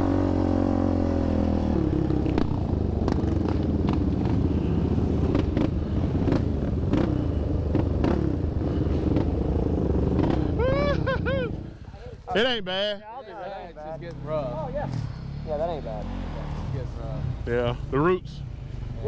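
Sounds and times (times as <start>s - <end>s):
quad engine running: 0.0s - 11.8s
knocks and clatter over trail: 1.0s - 10.6s.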